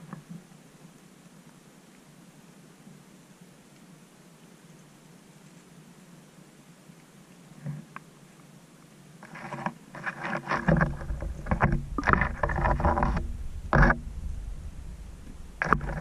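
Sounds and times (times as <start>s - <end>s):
clatter and knocks in rowboat: 9.2s - 16.0s
water splashing: 9.2s - 16.0s.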